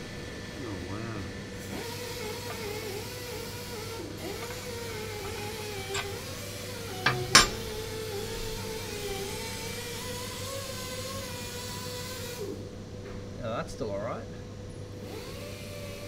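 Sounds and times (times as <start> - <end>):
workshop hum: 1.6 - 8.6
metal clinks: 4.4 - 8.0.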